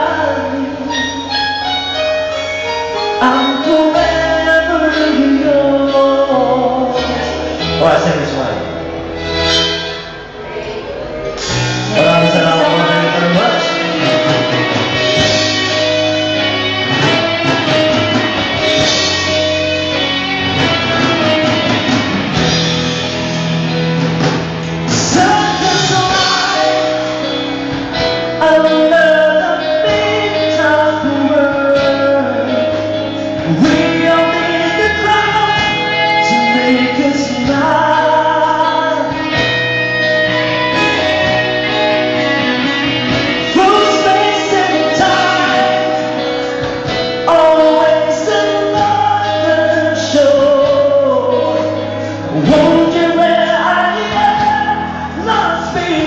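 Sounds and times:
person singing: 0:00.0 - 0:08.8, 0:10.4 - 0:56.0
live band playing: 0:00.0 - 0:56.0.

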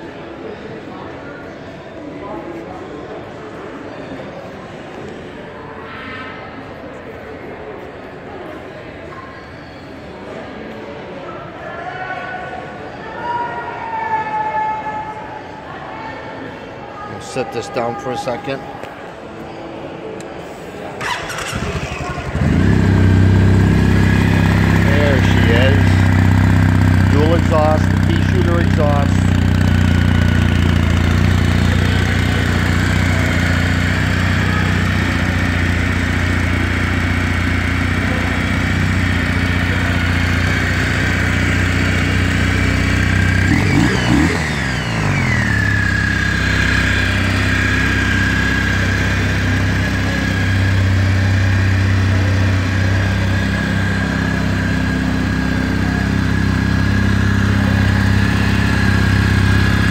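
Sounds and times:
motorcycle engine idling: 0:21.0 - 0:59.9.

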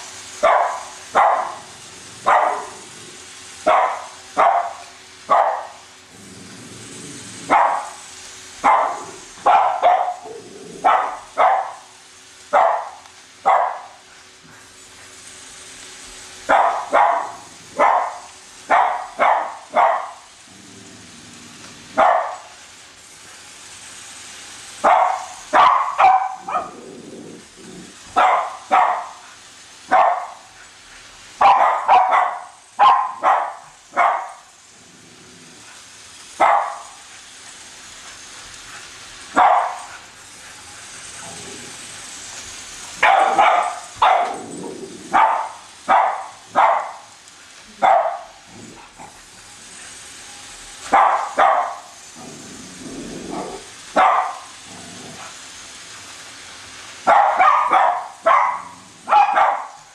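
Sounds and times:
dog barking: 0:00.4 - 0:02.8, 0:03.6 - 0:05.8, 0:07.5 - 0:08.0, 0:08.6 - 0:11.9, 0:12.5 - 0:14.0, 0:16.5 - 0:20.3, 0:22.0 - 0:22.5, 0:24.8 - 0:26.8, 0:28.2 - 0:29.2, 0:29.9 - 0:30.5, 0:31.4 - 0:34.5, 0:36.4 - 0:37.0, 0:39.4 - 0:39.9, 0:43.0 - 0:44.5, 0:45.1 - 0:47.1, 0:47.8 - 0:48.4, 0:50.9 - 0:51.9, 0:53.3 - 0:54.6, 0:57.0 - 0:59.9.

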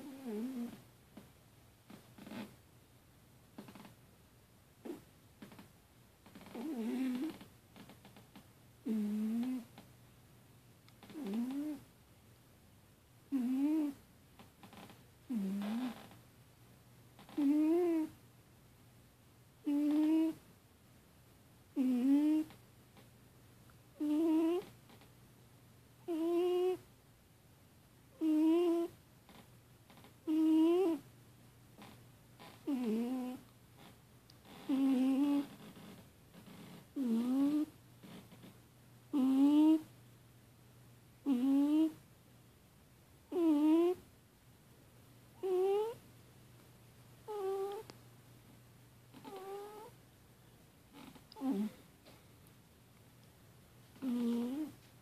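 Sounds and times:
cat snoring: 0:00.0 - 0:00.8, 0:01.9 - 0:02.5, 0:04.8 - 0:05.6, 0:06.3 - 0:07.5, 0:08.8 - 0:09.7, 0:11.0 - 0:11.8, 0:13.3 - 0:14.0, 0:15.3 - 0:16.1, 0:17.2 - 0:18.2, 0:19.6 - 0:20.4, 0:21.8 - 0:22.6, 0:24.0 - 0:24.7, 0:26.0 - 0:26.8, 0:28.1 - 0:29.0, 0:30.2 - 0:31.0, 0:32.6 - 0:33.5, 0:34.5 - 0:38.3, 0:39.1 - 0:39.9, 0:41.2 - 0:42.0, 0:43.3 - 0:44.0, 0:45.4 - 0:46.0, 0:47.3 - 0:47.9, 0:49.2 - 0:50.0, 0:50.9 - 0:51.8, 0:54.0 - 0:54.9
cat crying in sleep: 0:19.6 - 0:20.4, 0:26.1 - 0:26.8, 0:28.2 - 0:29.0, 0:30.2 - 0:31.0, 0:43.3 - 0:44.0, 0:45.4 - 0:46.0, 0:47.3 - 0:47.9, 0:49.2 - 0:49.9.

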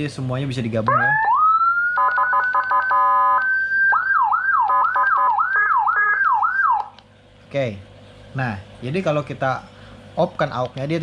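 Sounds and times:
electronic siren: 0:00.9 - 0:07.0.

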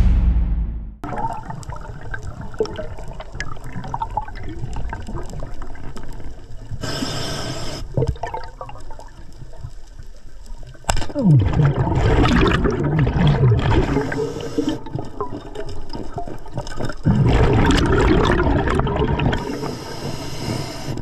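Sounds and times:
underwater bubbling and gurgling: 0:01.0 - 0:21.0
diver breathing through regulator: 0:06.8 - 0:07.9, 0:13.7 - 0:14.9, 0:19.4 - 0:21.0
short hiss: 0:06.8 - 0:07.9.

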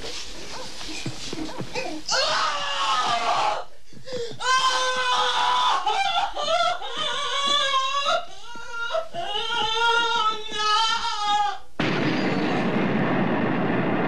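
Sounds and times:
scuffling feet thuds: 0:00.0 - 0:02.1.

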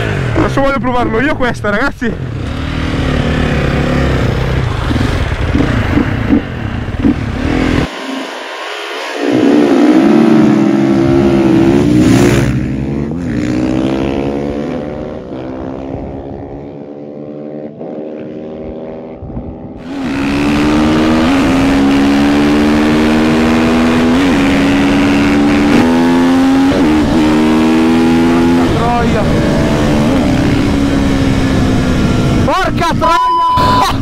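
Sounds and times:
motorcycles accelerating: 0:00.0 - 0:33.2.

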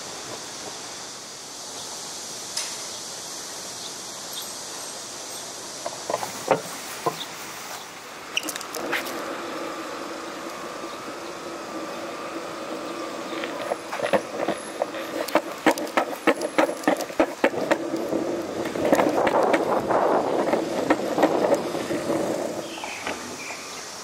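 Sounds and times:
longboard wheels rolling on stone: 0:00.0 - 0:01.1, 0:05.4 - 0:24.0
wheels clacking over joints: 0:05.8 - 0:07.4, 0:08.4 - 0:23.6.

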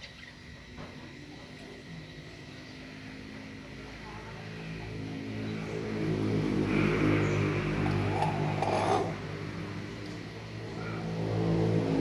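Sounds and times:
vehicle engine running low: 0:00.0 - 0:12.0.

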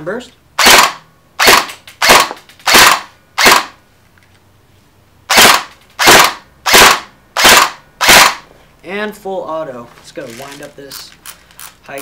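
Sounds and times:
airsoft rifle firing bursts: 0:00.6 - 0:03.8, 0:05.3 - 0:08.4.

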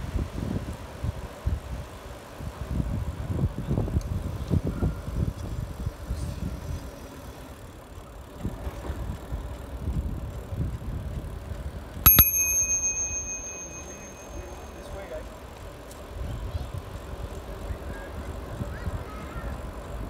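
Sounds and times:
wind rumble on microphone: 0:00.0 - 0:06.9
bicycle bell ringing: 0:12.1 - 0:15.4.

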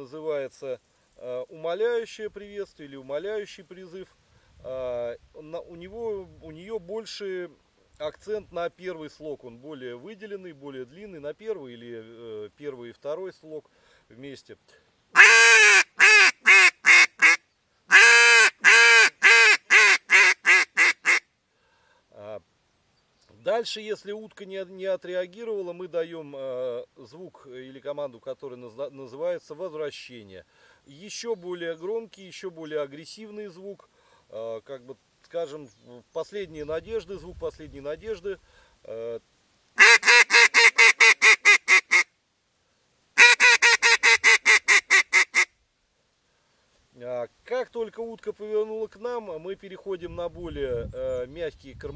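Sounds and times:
duck call quacks: 0:15.2 - 0:21.3, 0:39.8 - 0:42.1, 0:43.2 - 0:45.5.

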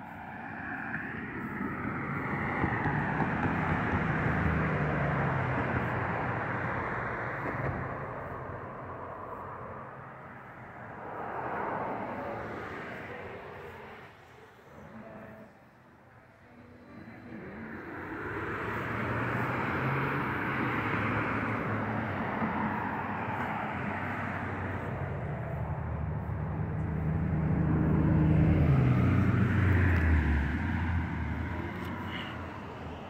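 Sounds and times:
engine passing by: 0:00.0 - 0:33.0.

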